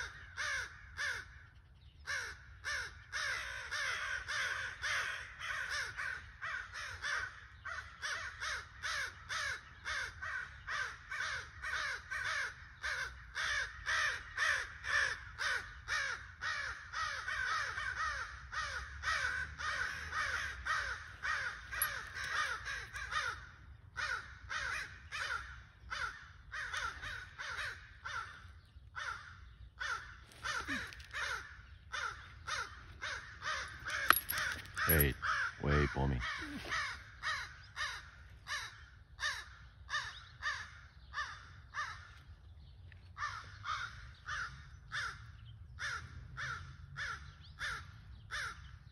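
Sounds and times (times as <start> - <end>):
crows cawing: 0.0 - 42.4, 43.2 - 48.9.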